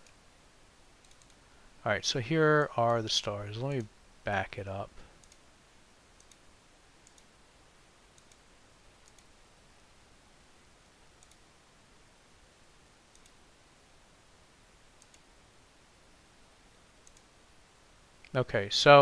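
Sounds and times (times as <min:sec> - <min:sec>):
computer mouse clicks: 0:01.0 - 0:01.4, 0:05.2 - 0:05.4, 0:06.2 - 0:06.4, 0:07.0 - 0:07.3, 0:08.1 - 0:09.3, 0:11.2 - 0:11.5, 0:13.1 - 0:13.4, 0:15.0 - 0:15.3, 0:17.0 - 0:17.3.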